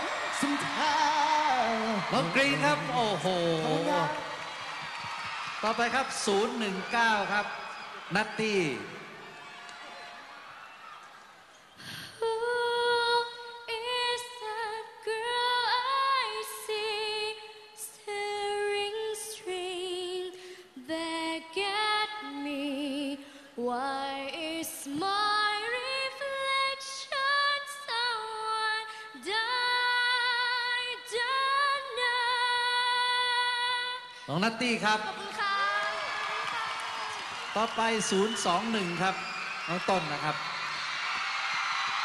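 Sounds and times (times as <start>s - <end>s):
woman breathing: 11.8s - 12.2s
woman singing: 12.2s - 34.2s.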